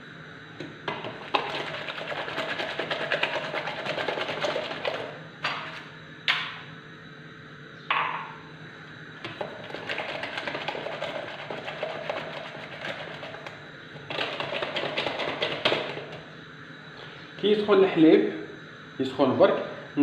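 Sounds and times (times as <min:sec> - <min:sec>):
knock: 0:07.9 - 0:08.3.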